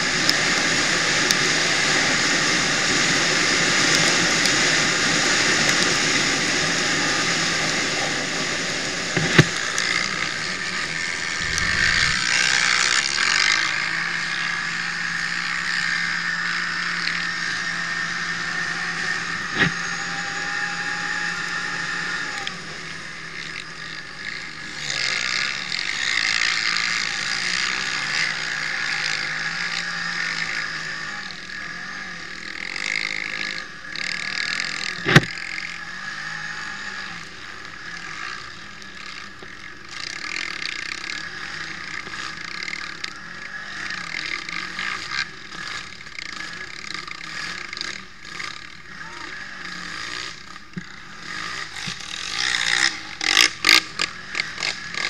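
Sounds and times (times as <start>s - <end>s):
wind and tyre noise: 0.0s - 12.7s
quad engine running hard: 0.0s - 55.0s.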